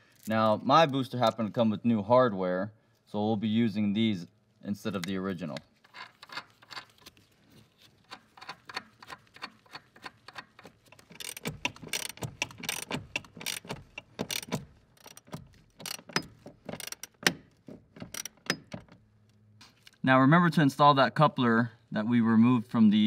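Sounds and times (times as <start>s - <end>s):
ratchet wrench clicking: 8.1s - 18.8s.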